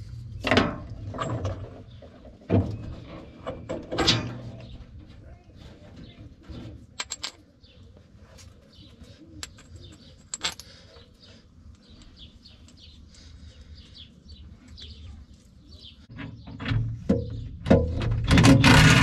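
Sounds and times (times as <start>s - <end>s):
small birds chirping: 7.4s - 17.6s.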